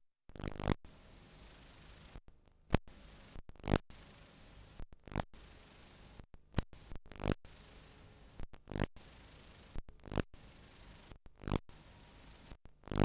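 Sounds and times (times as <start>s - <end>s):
videotape hiss: 2.9s - 4.8s, 5.4s - 6.2s, 6.8s - 8.4s, 10.4s - 12.6s.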